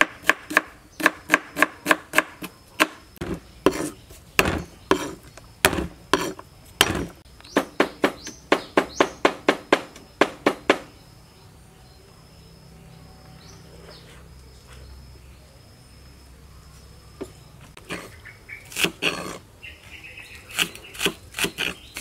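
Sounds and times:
knife chopping on wooden board: 0:00.0 - 0:10.8
insects chirping: 0:00.0 - 0:22.0.

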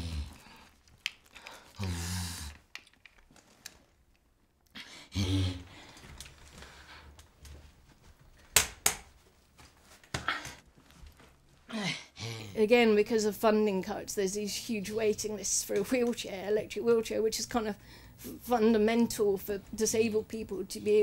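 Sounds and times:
rustling and small clicks: 0:00.5 - 0:01.8, 0:02.4 - 0:04.7
strained vocal sounds: 0:01.6 - 0:02.7.

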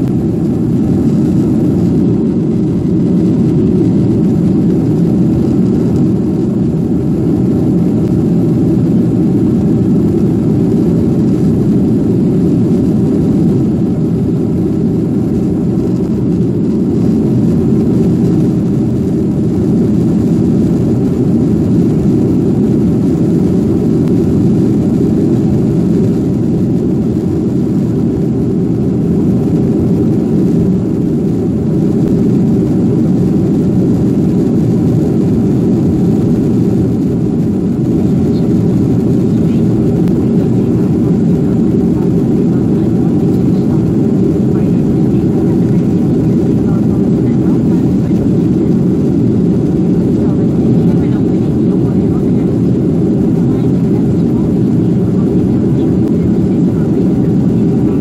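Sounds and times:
air rushing along fuselage: 0:00.0 - 0:58.0
jet engines droning: 0:00.0 - 0:58.0.

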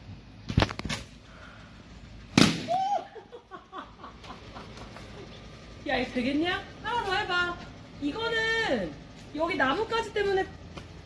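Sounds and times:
loud sharp bang: 0:02.3 - 0:02.8.

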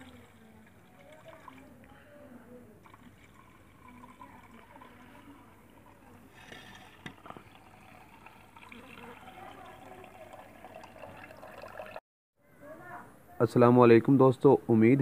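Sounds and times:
liquid pouring into metal bowl: 0:00.0 - 0:02.0, 0:02.8 - 0:12.0.

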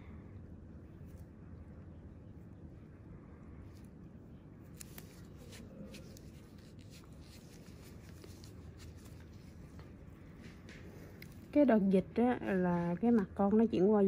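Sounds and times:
low steady hum: 0:00.0 - 0:14.0
faint scratching on skin: 0:04.7 - 0:09.7.

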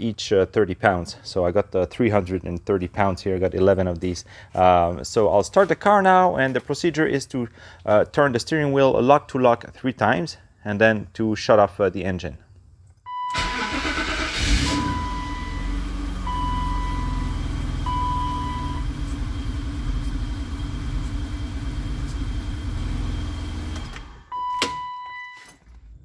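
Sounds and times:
dashboard warning beep: 0:13.1 - 0:13.7, 0:14.6 - 0:19.0, 0:24.3 - 0:25.6
car engine starting and idling: 0:13.2 - 0:24.7.

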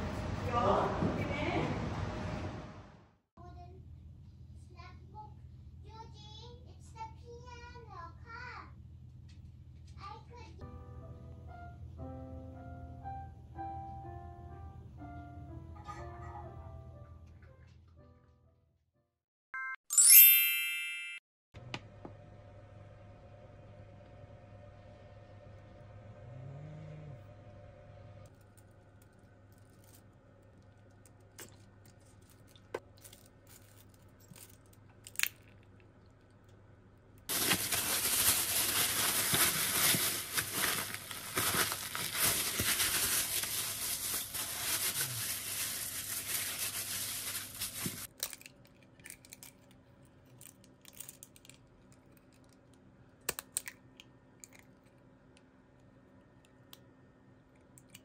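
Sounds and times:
plastic bag crinkling: 0:37.3 - 0:48.5.

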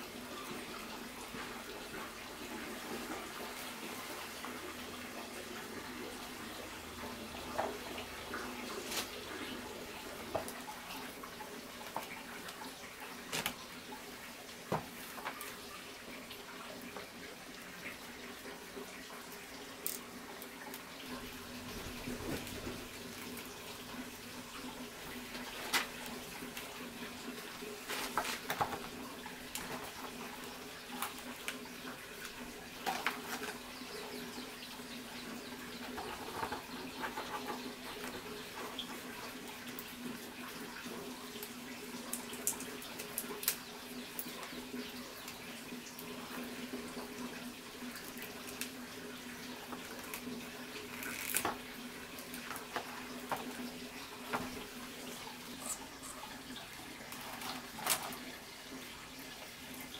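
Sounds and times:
steady hiss with low hum: 0:00.0 - 0:59.9
hands rustling tying bundles: 0:25.3 - 0:31.6.

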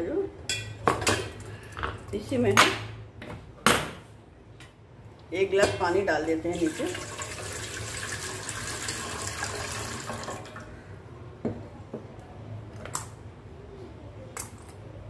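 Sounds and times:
water pouring into metal pot: 0:06.5 - 0:10.7.

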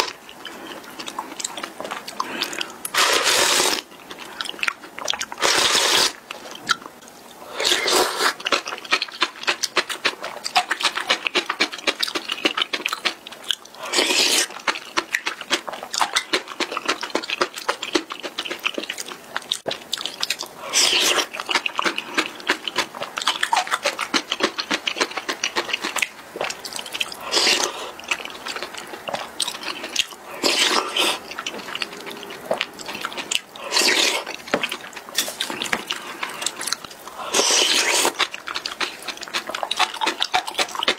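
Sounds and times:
noodle slurping: 0:00.0 - 0:04.5, 0:05.3 - 0:06.2, 0:07.5 - 0:08.6, 0:24.9 - 0:40.9.

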